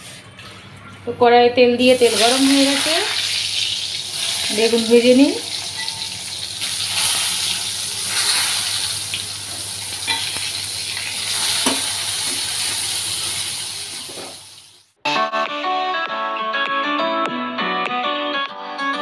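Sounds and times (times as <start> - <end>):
slices sizzling in hot oil: 1.9 - 14.9.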